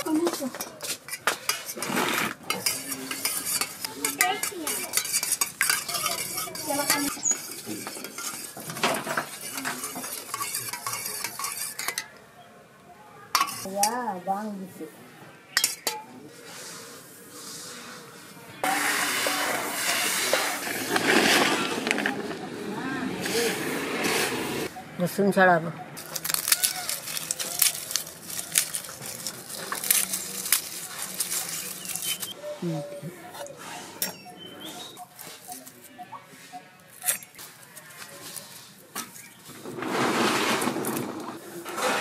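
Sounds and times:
spoon beating eggs in metal box: 2.5s - 12.1s
grain scraped with wooden board: 16.4s - 22.4s, 23.1s - 24.7s, 37.5s - 42.0s.

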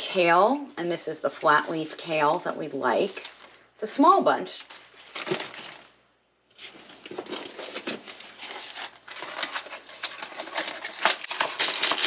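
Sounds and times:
packaging rustling and crinkling: 1.5s - 3.6s, 4.6s - 12.0s.

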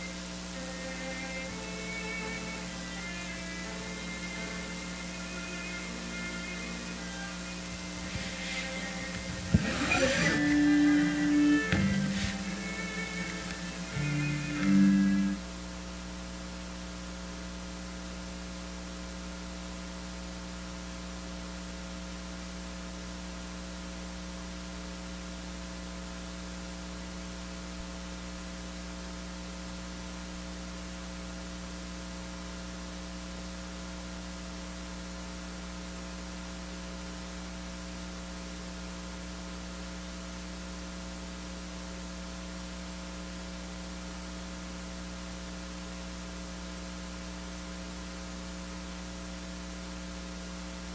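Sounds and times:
faint hiss: 0.0s - 15.5s
electrical mains hum: 0.0s - 25.6s.

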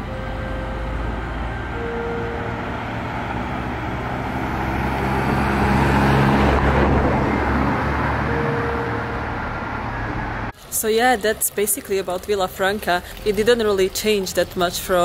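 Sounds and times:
car driving past: 0.0s - 10.5s.

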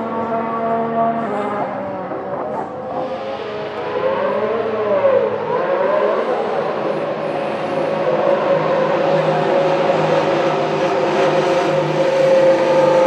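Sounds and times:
racing car engine at low revs: 0.0s - 13.0s.

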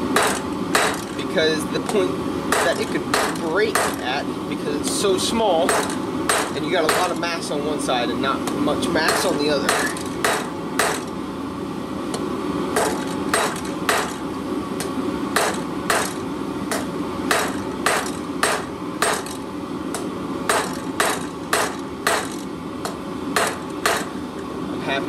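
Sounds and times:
hammer striking steel on anvil: 0.2s - 1.2s, 1.9s - 4.0s, 5.6s - 7.2s, 9.0s - 11.1s, 12.8s - 14.2s, 14.8s - 24.2s.

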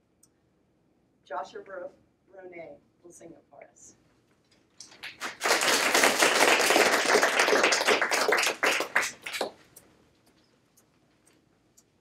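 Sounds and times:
audience applauding: 4.8s - 9.6s.

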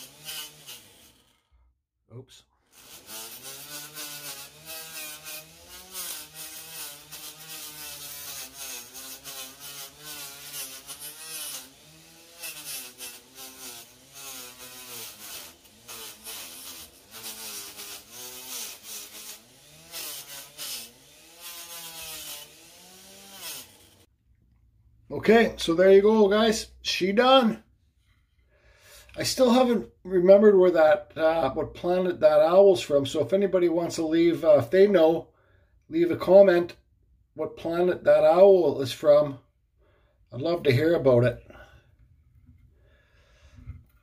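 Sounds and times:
gritty sanding rub: 0.0s - 1.4s, 2.7s - 24.1s
rotary tool motor hum: 0.0s - 1.5s, 2.7s - 24.1s.

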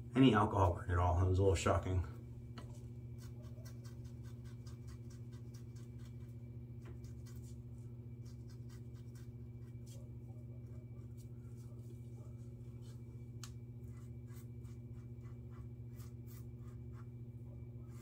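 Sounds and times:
low steady hum: 0.0s - 18.0s
razor scraping stubble: 3.1s - 6.3s, 6.9s - 9.9s, 13.8s - 17.2s.

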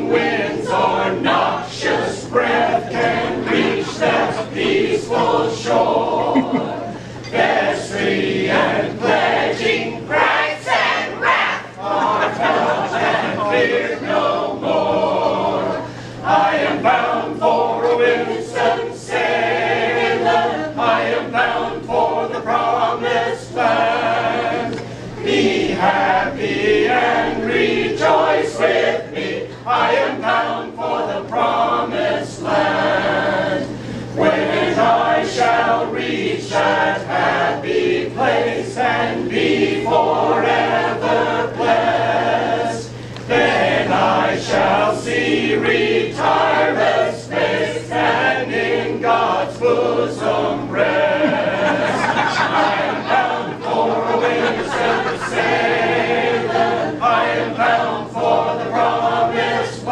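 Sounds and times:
mixed choir singing: 0.0s - 59.9s.

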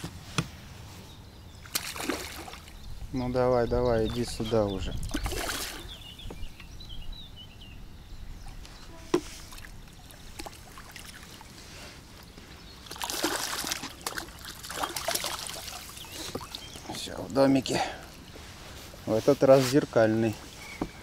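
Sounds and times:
fish splashing in water: 1.6s - 2.8s, 5.1s - 5.9s, 12.8s - 16.8s.

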